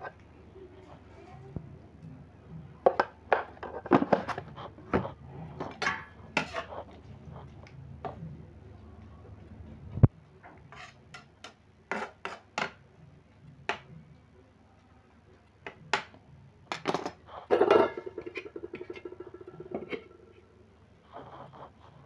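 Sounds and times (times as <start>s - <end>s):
metal lid clattering: 17.5s - 20.4s.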